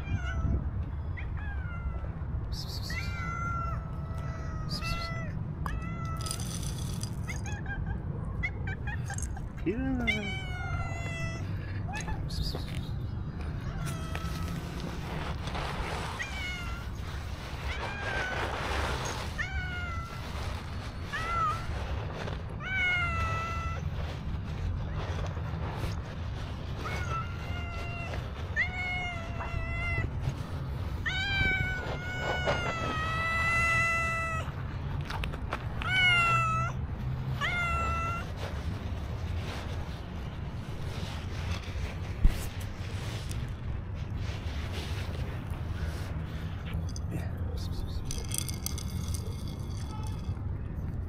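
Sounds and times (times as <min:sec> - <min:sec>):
cat meowing: 0:02.9 - 0:06.4, 0:10.0 - 0:12.3, 0:13.5 - 0:14.9, 0:16.1 - 0:20.4, 0:26.8 - 0:30.2, 0:31.0 - 0:34.6, 0:35.8 - 0:36.8, 0:37.4 - 0:38.3.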